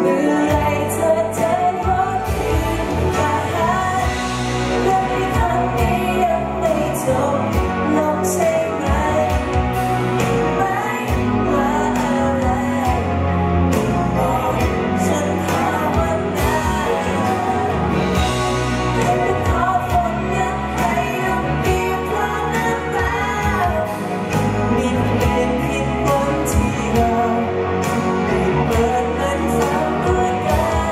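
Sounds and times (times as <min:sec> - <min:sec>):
man singing into microphone: 0:00.0 - 0:09.5, 0:19.0 - 0:30.9
bass guitar: 0:00.0 - 0:30.9
electric guitar: 0:00.0 - 0:30.9.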